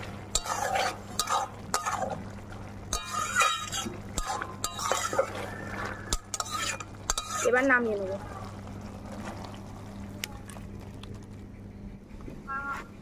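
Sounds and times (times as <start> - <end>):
spatula scraping a metal pan: 0.3 - 2.2, 2.9 - 5.5, 6.1 - 7.6.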